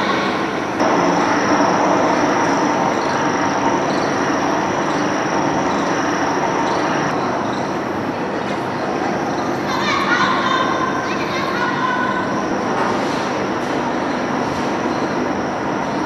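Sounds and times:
thin high whine: 0.0 - 8.2
machinery running: 0.0 - 11.2.

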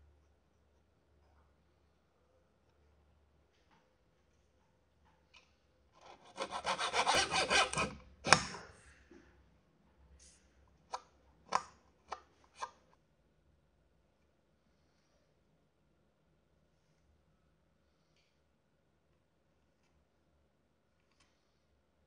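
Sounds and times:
small saw cutting wood: 6.0 - 8.5.

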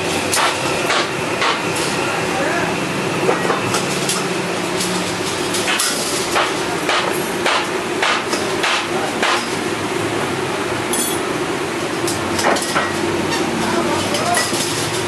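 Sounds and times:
hammer striking iron: 0.3 - 1.7, 5.7 - 9.6.

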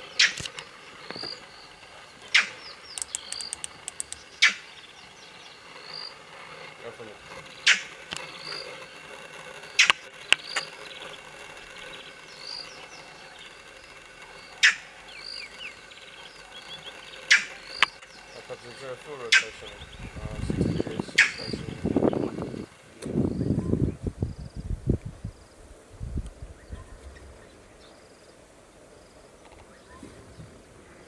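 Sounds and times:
run of clicks: 0.0 - 23.2
birds chirping: 0.0 - 23.8
insects buzzing: 0.0 - 24.7
sharp animal calls: 1.1 - 22.8.

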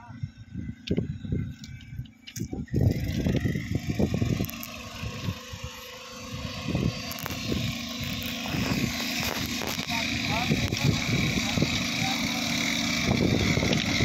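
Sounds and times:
small engine running: 0.0 - 14.0.

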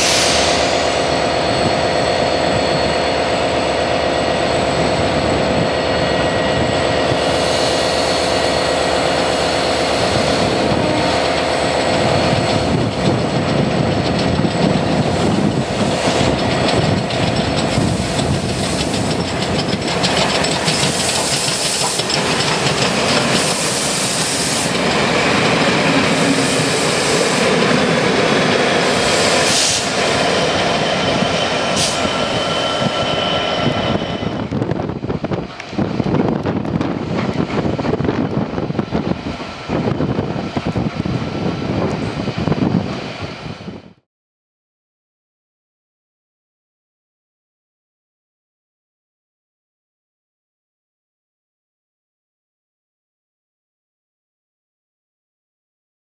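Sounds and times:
steam hissing: 0.0 - 1.3, 7.1 - 12.4, 17.6 - 34.4
train wheels clattering over rail joints: 11.2 - 33.7.

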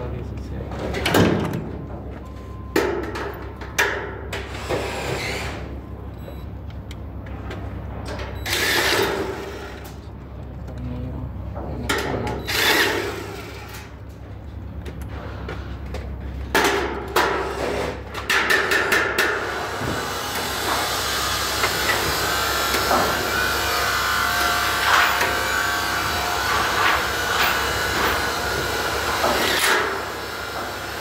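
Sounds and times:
power tool whirring: 4.5 - 5.7, 8.4 - 10.0, 12.4 - 13.9, 19.4 - 31.0.

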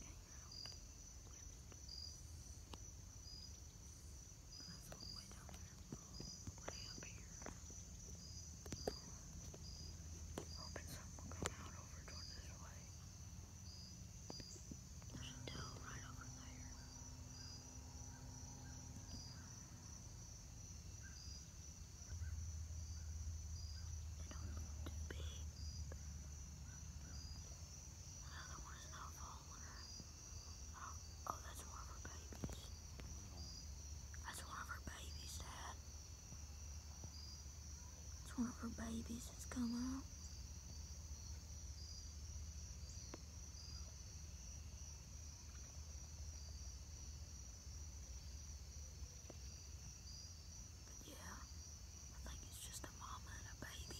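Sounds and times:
insects trilling: 0.0 - 53.9.

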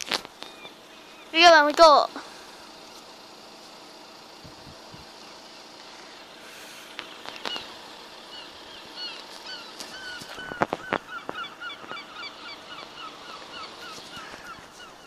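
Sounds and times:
birds honking: 0.0 - 1.6, 5.1 - 15.0.

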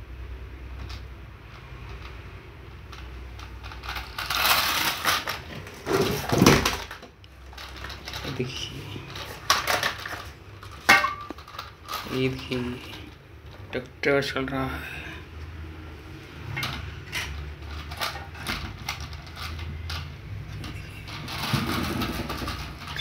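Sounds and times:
plastic toy scraping and clattering: 2.8 - 13.6, 16.5 - 23.0.

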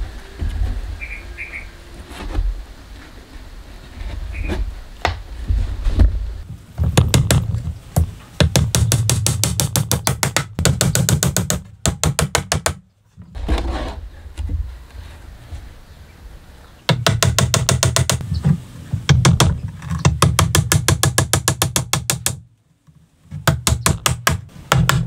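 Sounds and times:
hammer driving nails into wood: 6.8 - 7.6, 8.4 - 12.8, 16.9 - 18.2, 19.1 - 22.4, 23.4 - 25.0.

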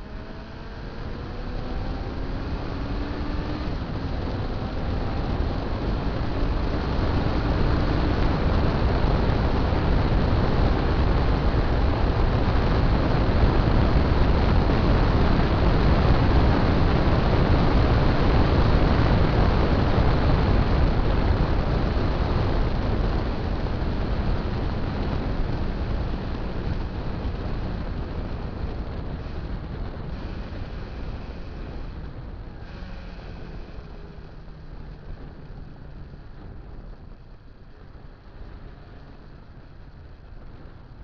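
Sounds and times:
motorcycle engine and tyre noise: 0.0 - 41.0
wind rushing over microphone: 0.0 - 41.0.

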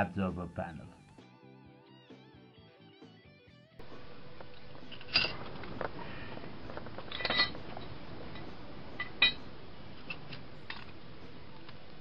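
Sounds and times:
steady background hiss: 3.8 - 12.0
metal clinks of wrench and pipe: 7.1 - 7.6, 9.0 - 9.4.

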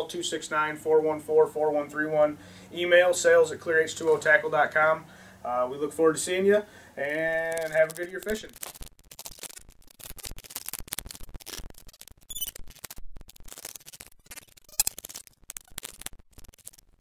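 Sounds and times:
digital clicks and static crackle: 7.3 - 17.0
high electronic chirp: 12.3 - 12.6.

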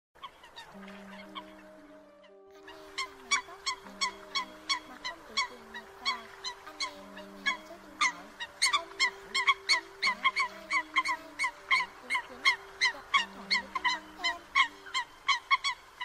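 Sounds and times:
coots calling: 0.2 - 16.0
held low music notes: 0.7 - 15.8.

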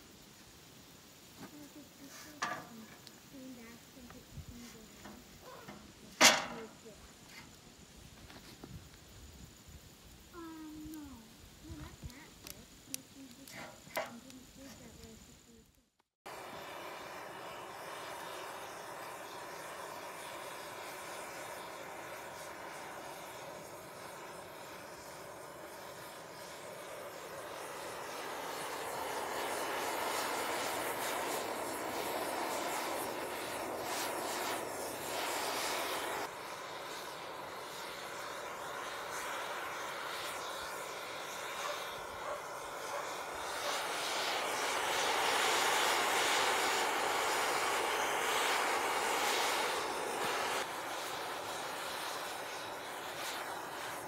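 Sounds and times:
gas torch flame rushing: 0.0 - 15.3, 16.3 - 54.0.

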